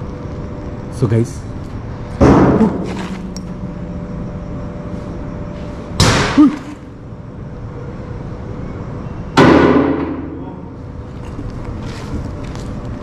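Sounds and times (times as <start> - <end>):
faint steady hum: 0.0 - 13.0
loud sudden bang: 6.0 - 6.8, 9.4 - 10.3.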